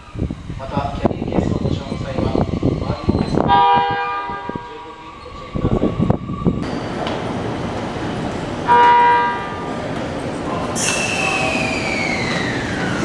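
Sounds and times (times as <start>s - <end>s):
high train whine: 0.0s - 13.0s
train running noise: 0.0s - 13.0s
train horn blast: 3.5s - 4.8s, 8.7s - 9.6s.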